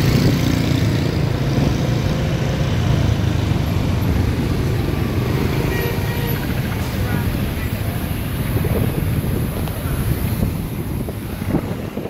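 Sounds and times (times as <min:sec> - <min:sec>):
motorbike engine rumbling: 0:00.0 - 0:12.0
wind on the microphone: 0:08.1 - 0:12.0.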